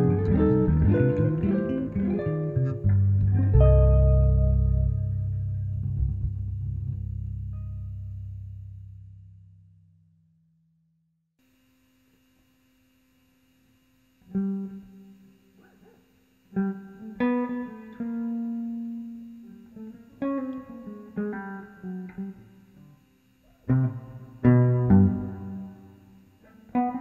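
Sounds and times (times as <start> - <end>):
electric guitar chords: 0.0 - 9.3, 16.5 - 23.0, 23.6 - 27.0.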